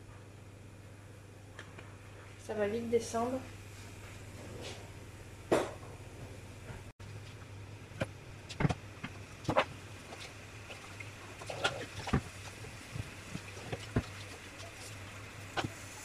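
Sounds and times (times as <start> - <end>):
steady low hum: 0.0 - 16.0
oil popping and crackling: 8.0 - 16.0.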